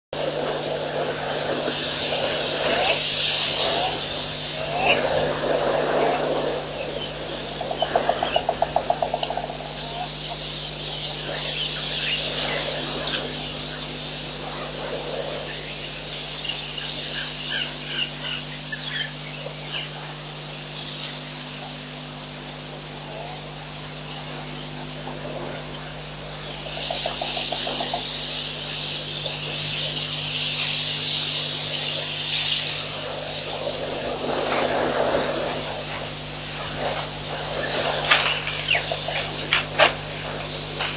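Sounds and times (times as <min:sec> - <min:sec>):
electrical hum: 0:00.0 - 0:40.9
high insect buzzing: 0:24.0 - 0:40.9.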